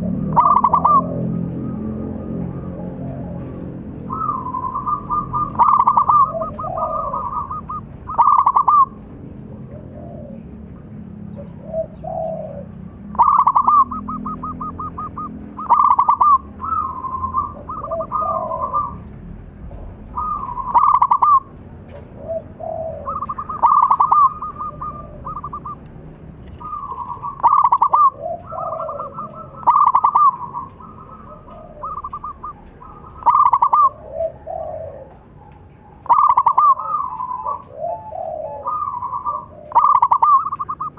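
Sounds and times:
soft low dove coos: 0.0s - 9.0s, 9.6s - 10.7s, 26.5s - 40.9s
dove trilled cooing: 0.0s - 40.9s.

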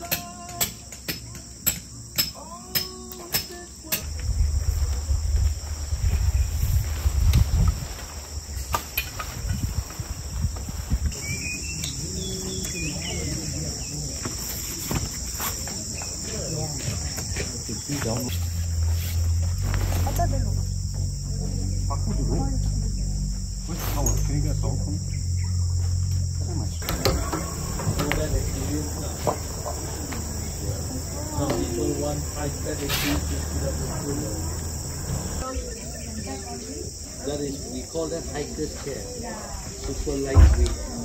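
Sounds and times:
insects chirping: 0.0s - 41.0s
low rumble: 4.0s - 8.4s, 18.3s - 35.4s.

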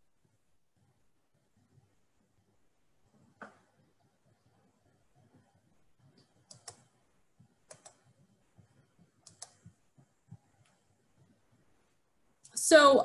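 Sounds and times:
computer mouse clicking: 6.0s - 8.3s, 8.9s - 11.4s.

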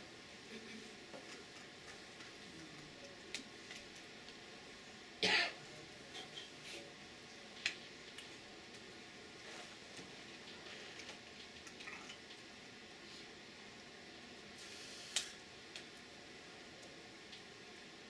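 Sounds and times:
faint steady hum: 0.0s - 18.0s
person coughing: 5.2s - 5.6s.

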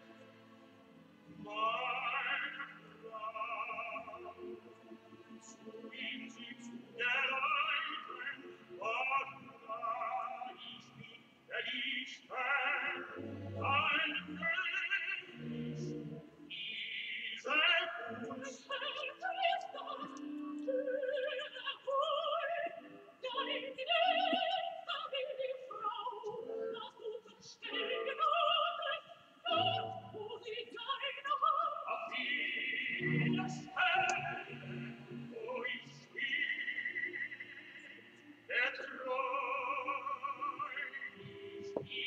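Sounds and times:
music with operatic singing: 0.0s - 42.0s.

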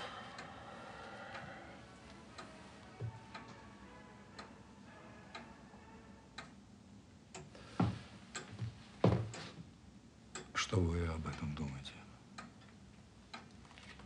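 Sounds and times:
clock ticking: 0.0s - 4.6s, 6.3s - 6.6s, 8.3s - 9.5s, 10.3s - 13.6s.

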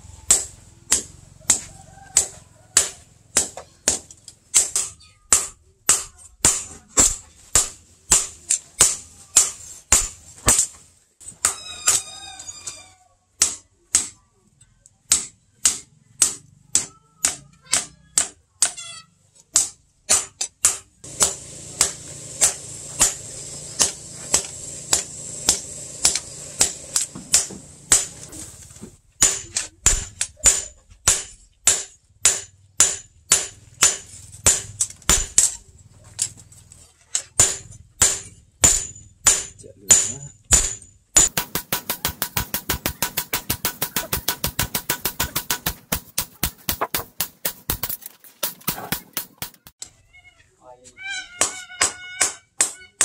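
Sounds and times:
hammer striking hot metal on anvil: 0.3s - 1.6s, 20.1s - 23.2s, 29.2s - 35.5s, 37.4s - 49.7s.

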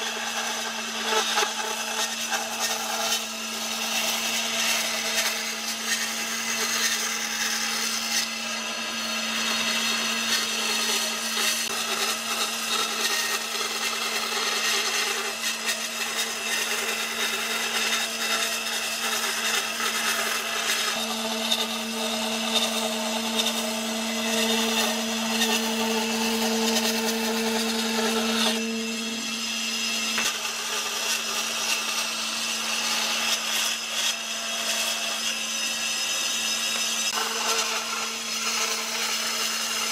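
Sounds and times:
band saw motor hum: 0.0s - 39.9s
saw blade rasping wood: 0.0s - 39.9s.

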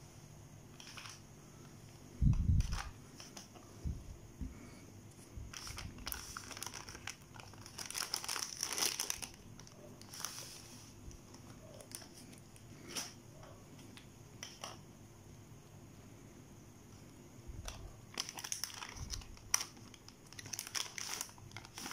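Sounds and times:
plastic pouch crinkling: 0.8s - 1.2s, 2.6s - 3.4s, 5.5s - 10.4s, 17.7s - 21.9s.

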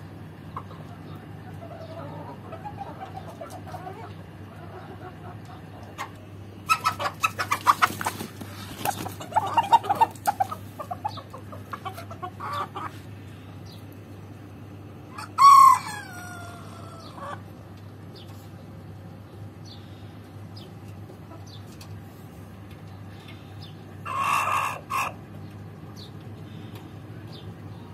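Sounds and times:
chickens clucking: 0.1s - 27.9s
rooster crowing: 15.1s - 17.2s.

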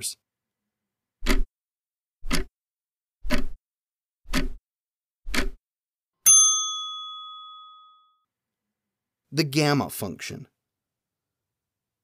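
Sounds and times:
clock ticking: 1.2s - 1.5s, 2.2s - 2.5s, 4.3s - 4.6s, 5.3s - 5.6s
bell ding: 6.2s - 8.3s.

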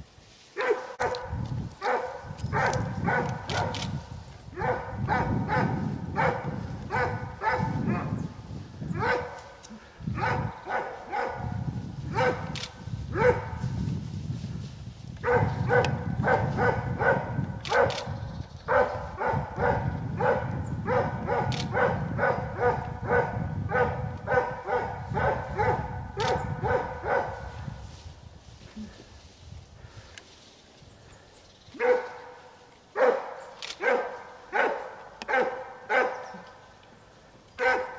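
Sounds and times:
dog barking: 0.6s - 3.9s, 4.6s - 8.2s, 9.0s - 9.5s, 10.2s - 13.6s, 15.2s - 27.5s, 31.8s - 32.4s, 33.0s - 36.3s, 37.6s - 37.9s.

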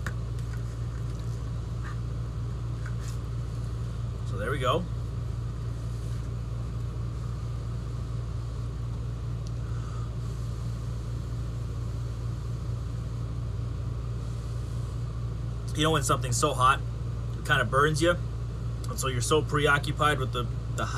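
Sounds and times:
low machine hum: 0.0s - 20.9s.

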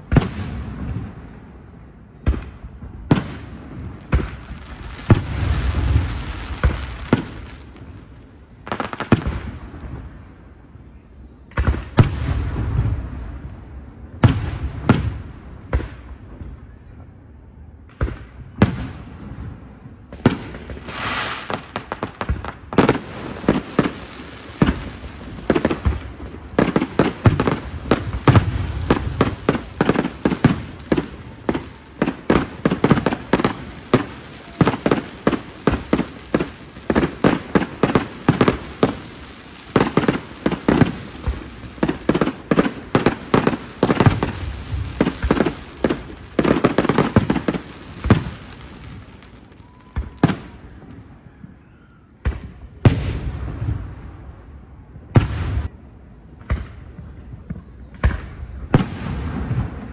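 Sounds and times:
firework crackle: 3.1s - 10.0s, 20.2s - 51.0s
firework shells bursting: 21.4s - 50.6s.

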